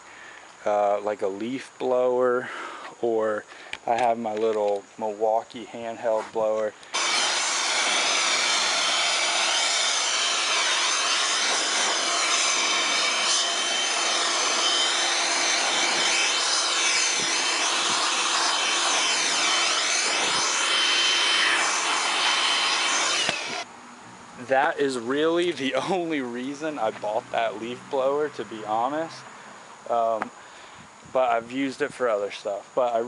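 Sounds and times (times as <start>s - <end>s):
leaf blower running: 6.9s - 23.7s.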